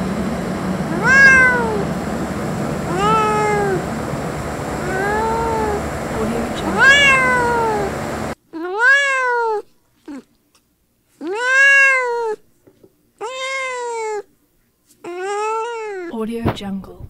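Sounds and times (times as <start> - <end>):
kitten meowing: 0.9 - 1.9, 2.9 - 3.8, 4.8 - 5.8, 6.7 - 7.9, 8.6 - 10.3, 11.2 - 12.4, 13.2 - 14.3, 15.1 - 16.1
background noise: 8.4 - 17.0.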